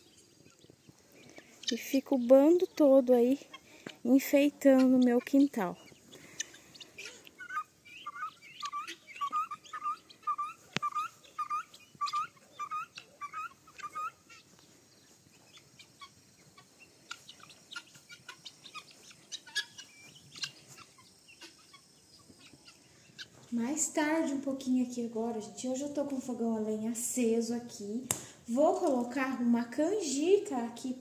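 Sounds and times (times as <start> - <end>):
guinea fowl calling: 0.0 - 23.5
faint bird chirps: 0.0 - 24.4.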